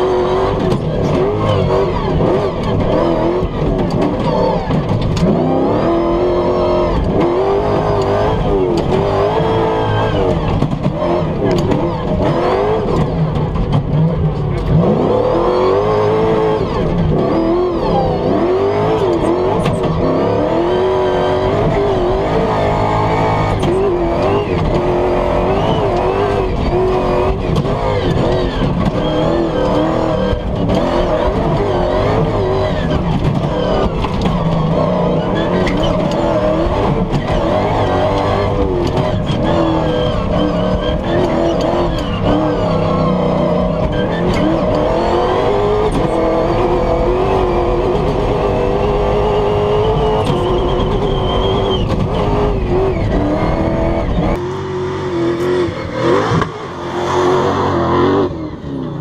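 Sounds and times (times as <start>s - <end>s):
truck engine revving: 0.0s - 59.0s
knocks and rattles: 2.1s - 5.6s, 10.2s - 14.8s, 23.6s - 46.4s.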